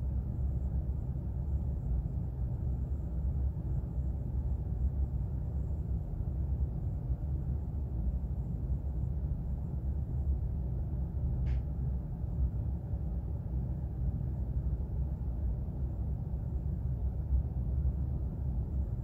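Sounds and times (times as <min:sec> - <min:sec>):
low background rumble: 0:00.0 - 0:19.0.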